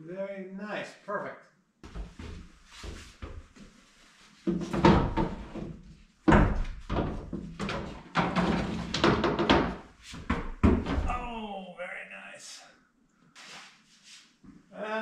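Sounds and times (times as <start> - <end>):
wooden panels knocking on steel floor: 6.3 - 11.0.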